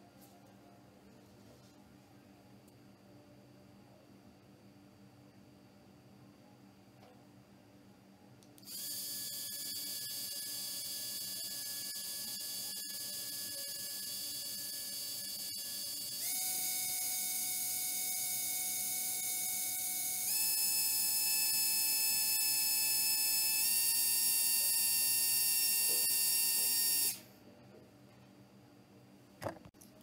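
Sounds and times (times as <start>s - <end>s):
small fan motor whine: 0.0s - 27.6s.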